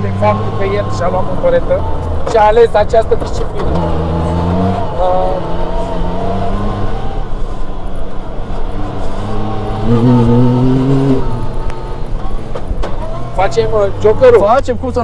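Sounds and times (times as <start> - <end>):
vehicle engine revving: 0.0 - 15.0.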